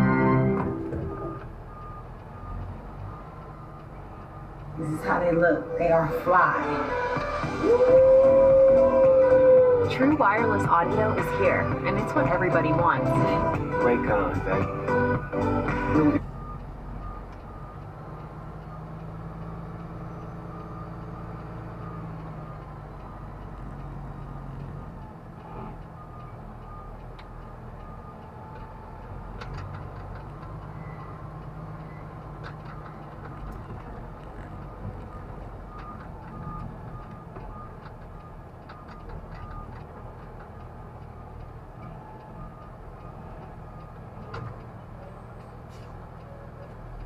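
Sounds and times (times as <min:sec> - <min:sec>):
truck engine running: 0:00.0 - 0:47.0
faint repeated beep: 0:00.6 - 0:05.1, 0:16.2 - 0:23.3.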